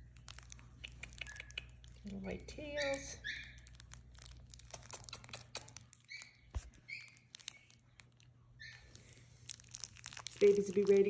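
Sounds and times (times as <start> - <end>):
puppy squeaks: 0.8 - 1.9, 2.7 - 7.8, 8.6 - 9.1.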